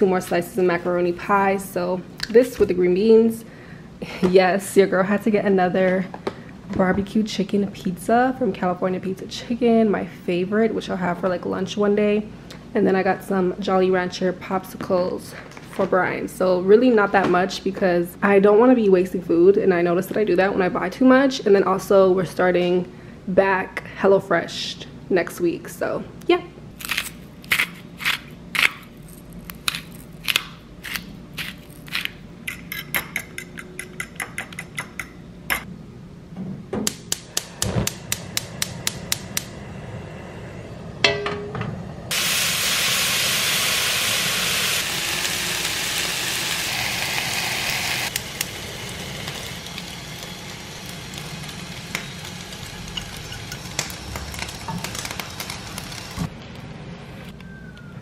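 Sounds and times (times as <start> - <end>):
food sizzling in hot pan: 42.1 - 56.2.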